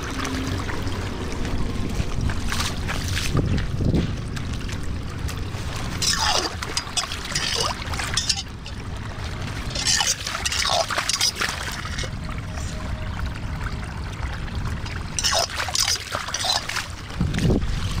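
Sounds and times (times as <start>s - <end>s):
water pouring through a drain: 0.0s - 18.0s
water splashing: 0.0s - 18.0s.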